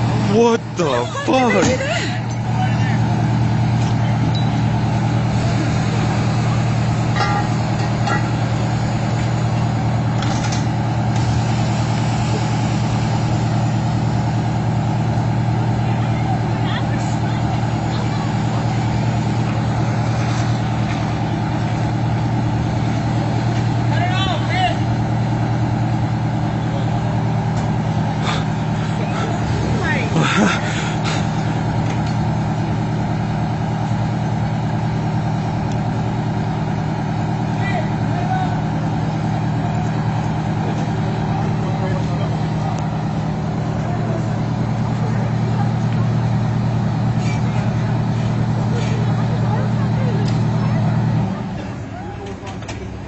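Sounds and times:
truck engine idling: 0.0s - 53.0s.

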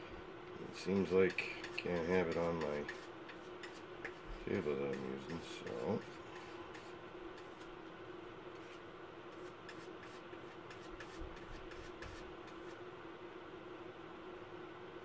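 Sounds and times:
steady low hum: 0.0s - 15.0s
light scratching: 0.8s - 7.7s, 8.5s - 12.8s.

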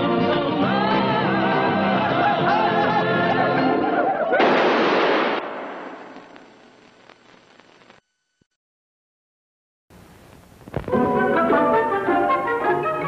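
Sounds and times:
loud explosion blast: 4.4s - 6.3s.

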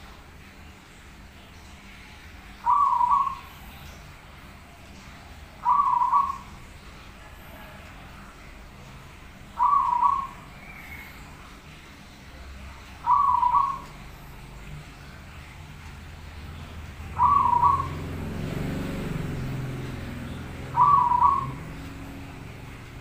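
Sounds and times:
dove cooing: 2.6s - 3.7s, 5.6s - 6.6s, 9.6s - 11.2s, 13.0s - 14.1s, 17.1s - 22.0s.

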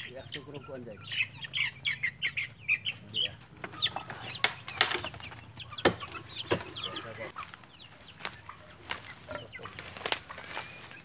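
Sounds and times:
chicks peeping: 0.0s - 11.0s
sharp knocks: 5.8s - 6.7s.

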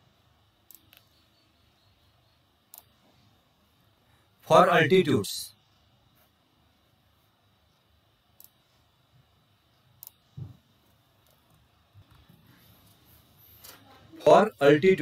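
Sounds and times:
faint clicks: 0.6s - 1.2s, 2.7s - 2.9s, 10.0s - 10.2s
soft thump: 10.3s - 10.6s.

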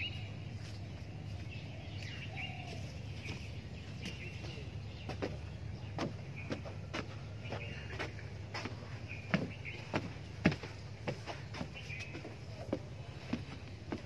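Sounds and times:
small birds chirping: 0.0s - 14.0s
steady low hum: 0.0s - 14.0s.

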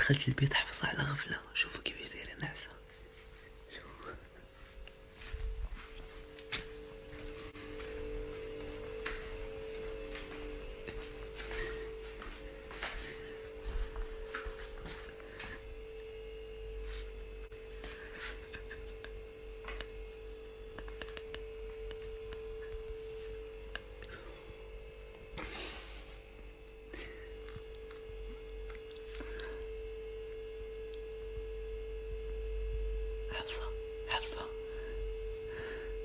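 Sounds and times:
steady hum: 0.0s - 36.0s.

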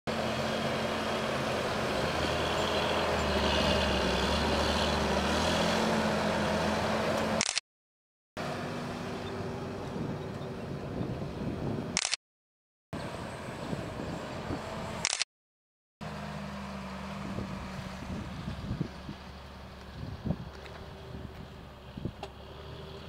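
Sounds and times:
tractor diesel engine under load: 0.1s - 7.6s, 16.0s - 23.0s
sharp click: 7.4s - 7.6s, 12.0s - 12.2s, 15.0s - 15.3s.

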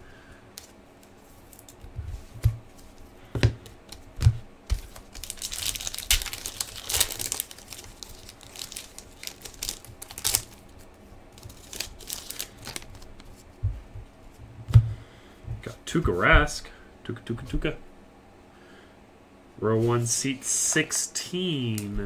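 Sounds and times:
foil wrapper crinkling: 4.7s - 13.4s.

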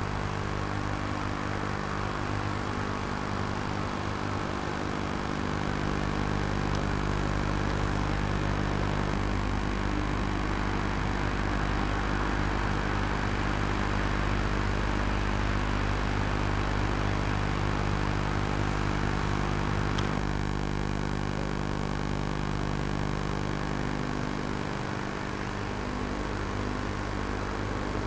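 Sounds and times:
faint short tick: 19.9s - 20.2s.

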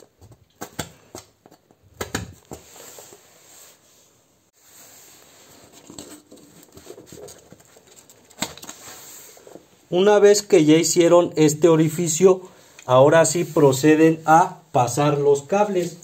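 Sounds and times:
cardboard rustling: 4.8s - 9.7s.

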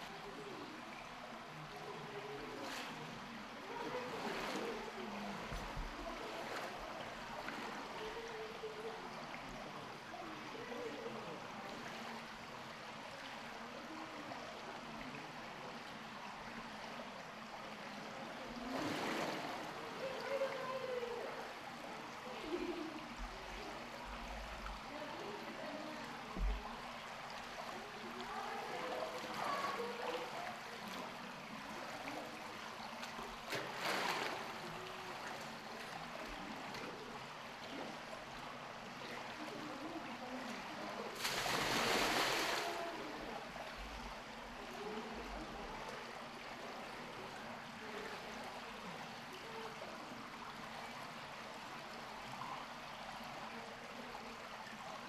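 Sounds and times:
faint distant voices: 0.0s - 55.0s
running water rushing: 0.0s - 55.0s
water gushing: 18.4s - 22.7s, 25.1s - 38.6s, 41.0s - 47.2s.

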